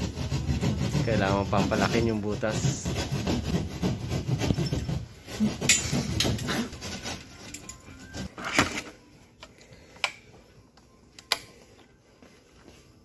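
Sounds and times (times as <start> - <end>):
hand tool scraping plasterboard: 0.0 - 8.4.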